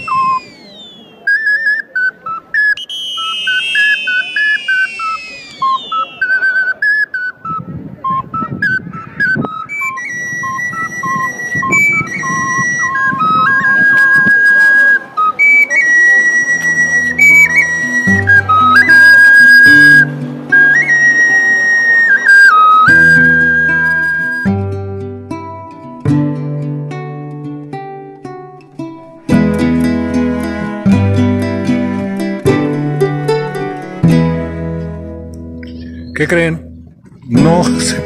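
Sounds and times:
falling pitch swoops: 0.0 - 7.0
lower tones: 0.0 - 25.6
flute-like melody: 0.0 - 36.8, 37.4 - 38.0.

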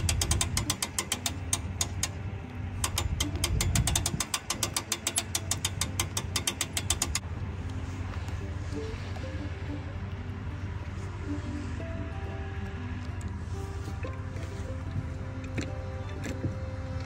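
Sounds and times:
fast mechanical clicking: 0.0 - 7.2.

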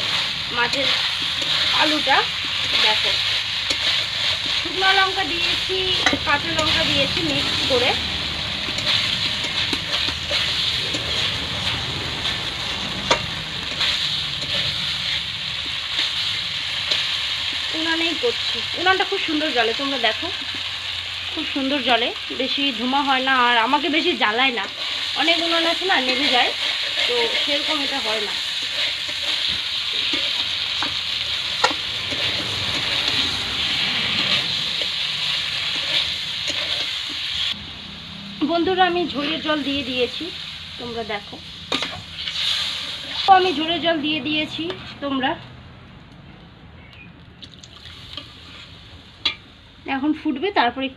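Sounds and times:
metal spatula scraping pan: 0.0 - 17.5, 24.5 - 37.6, 41.6 - 45.1
potatoes sizzling in oil: 0.0 - 45.3, 47.7 - 50.9.

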